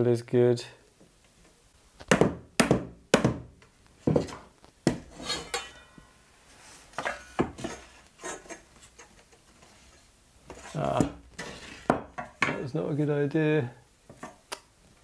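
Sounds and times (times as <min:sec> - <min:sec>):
mallet knocking wooden frame: 0:02.1 - 0:03.5.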